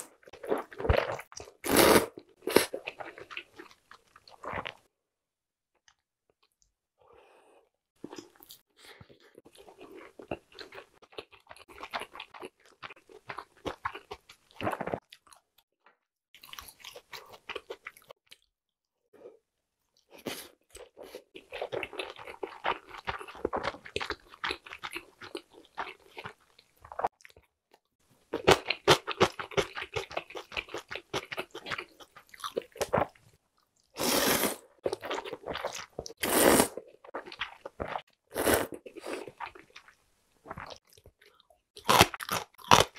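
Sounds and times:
slurping noodles: 0.0s - 3.2s, 34.0s - 37.7s, 38.3s - 39.4s.

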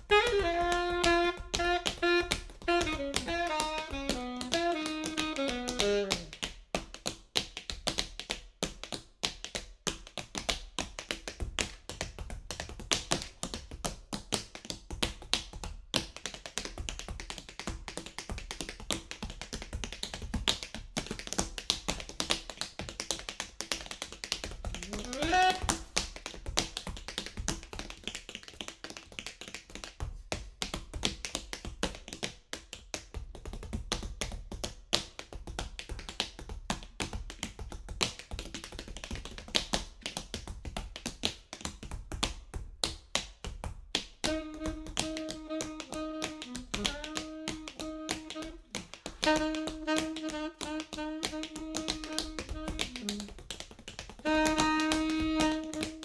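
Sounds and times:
alto saxophone long notes: 0.0s - 6.4s, 24.7s - 25.8s, 44.2s - 53.4s, 54.2s - 56.0s
tap shoes on wooden floor: 0.0s - 56.0s.

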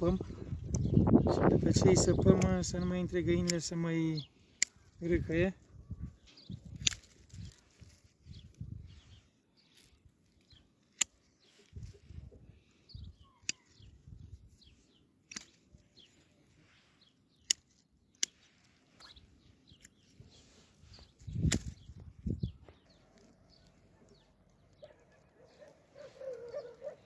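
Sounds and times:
pruning shears snipping twigs: 2.2s - 5.0s, 6.6s - 8.1s, 9.7s - 11.8s, 15.2s - 15.8s, 17.4s - 20.2s, 21.0s - 22.0s
branches rustling and bumping: 6.5s - 8.8s, 19.7s - 27.0s.

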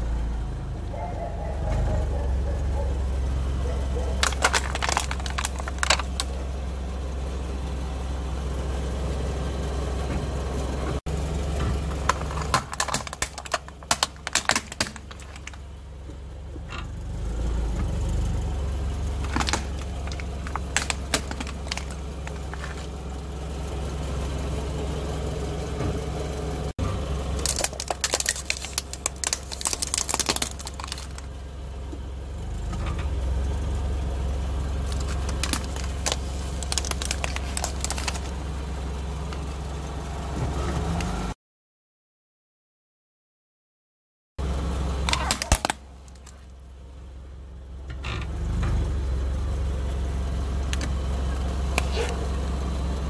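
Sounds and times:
car engine running: 0.0s - 41.3s, 44.4s - 53.0s
tyre crunching objects on paving: 3.8s - 6.4s, 11.7s - 15.6s, 19.0s - 23.0s, 27.3s - 31.3s, 34.8s - 38.4s.

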